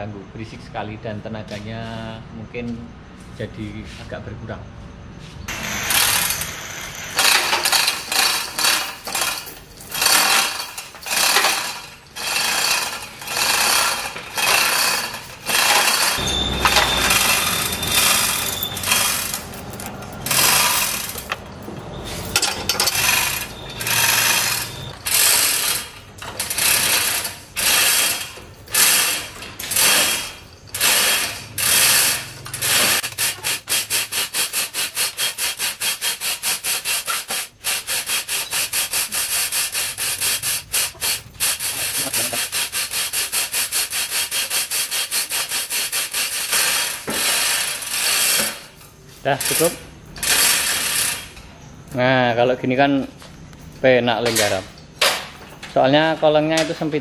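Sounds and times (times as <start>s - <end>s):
hoist chain rattling: 5.5s - 57.0s
hoist ratchet clicking: 22.2s - 48.7s, 49.3s - 51.4s.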